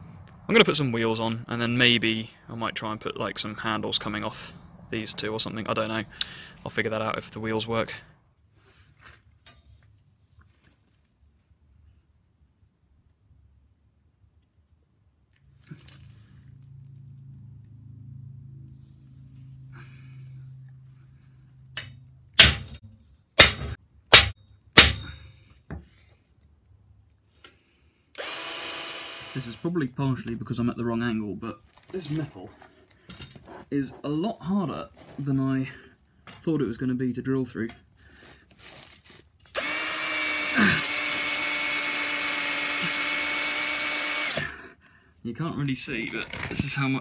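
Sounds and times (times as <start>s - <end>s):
hammer striking steel: 21.8s - 22.8s, 23.4s - 25.2s
electric drill boring through steel: 28.2s - 29.7s, 39.5s - 44.5s.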